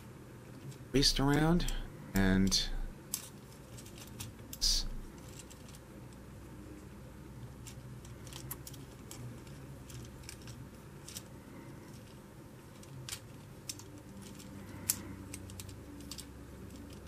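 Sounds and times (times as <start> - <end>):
plastic toy parts clicking: 12.8 - 17.0.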